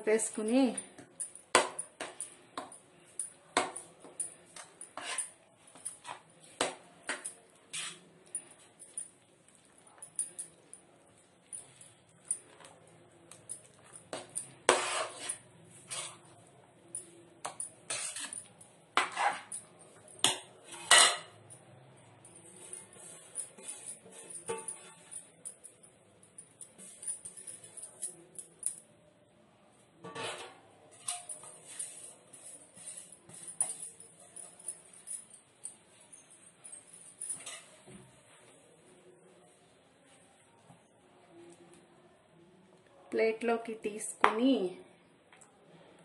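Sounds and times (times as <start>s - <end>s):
spoon scraping a pan: 3.6s - 10.1s, 13.7s - 16.4s, 17.5s - 19.6s, 20.2s - 21.4s, 22.6s - 25.3s, 30.0s - 33.7s, 37.4s - 37.9s.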